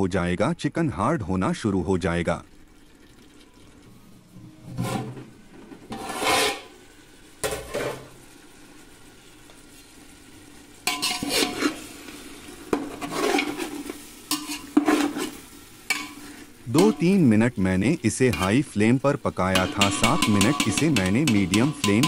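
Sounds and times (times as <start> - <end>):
masala sizzling: 0.2 - 22.0
metal spatula scraping a pot: 4.6 - 5.2, 5.9 - 6.7, 10.8 - 11.9, 12.7 - 17.0, 19.5 - 22.0.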